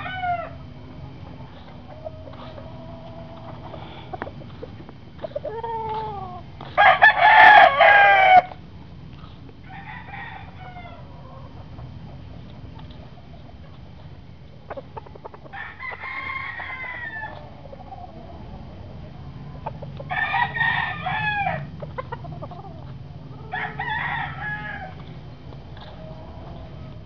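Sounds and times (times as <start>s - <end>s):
rooster crowing: 0.0s - 0.7s, 5.5s - 8.6s, 9.6s - 11.5s, 15.4s - 18.2s, 20.1s - 21.7s, 23.4s - 25.0s.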